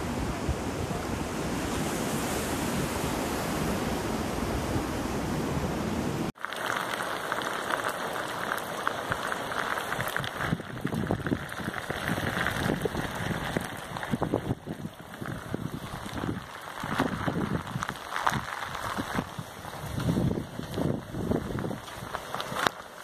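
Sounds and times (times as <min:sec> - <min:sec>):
storm wind: 0:00.0 - 0:06.3, 0:08.4 - 0:23.0
surf: 0:00.0 - 0:23.0
heavy rain pattering: 0:06.2 - 0:23.0.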